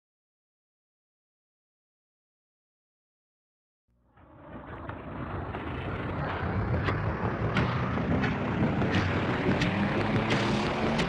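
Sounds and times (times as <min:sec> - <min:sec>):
low rumbling drone: 0:04.0 - 0:11.0.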